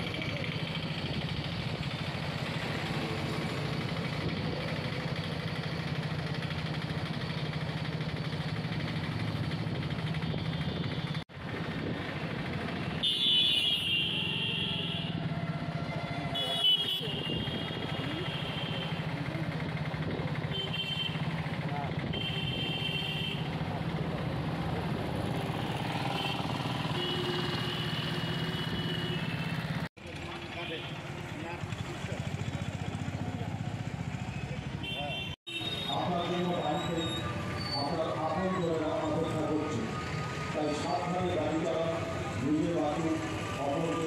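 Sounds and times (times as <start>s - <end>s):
vehicle engine running: 0.0s - 13.0s, 17.2s - 34.8s
road traffic noise: 0.0s - 44.0s.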